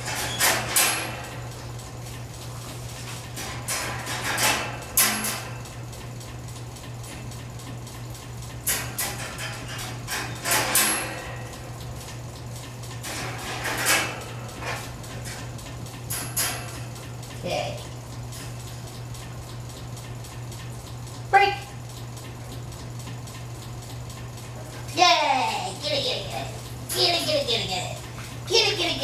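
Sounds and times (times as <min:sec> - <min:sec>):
wire crate rattling and clinking: 0:00.0 - 0:01.6, 0:03.3 - 0:05.7, 0:08.7 - 0:11.7, 0:13.0 - 0:17.0
steady low hum: 0:00.0 - 0:29.0.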